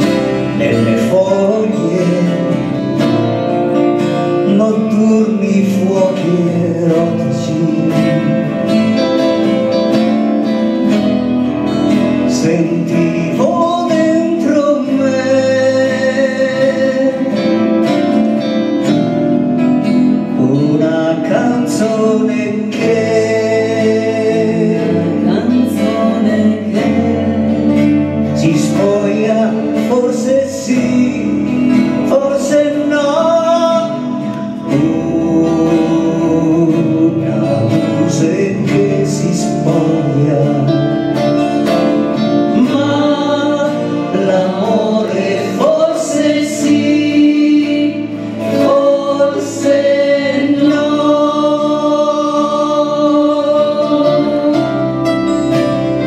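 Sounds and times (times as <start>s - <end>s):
men singing: 0.0s - 9.9s, 11.9s - 19.3s, 20.2s - 56.0s
guitars playing: 0.0s - 56.0s
woman singing: 25.2s - 27.7s.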